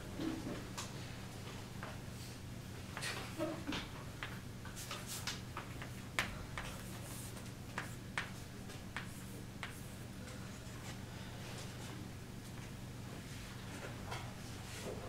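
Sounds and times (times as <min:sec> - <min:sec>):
steady low hum: 0:00.0 - 0:15.0
chalk tapping on chalkboard: 0:05.1 - 0:10.0.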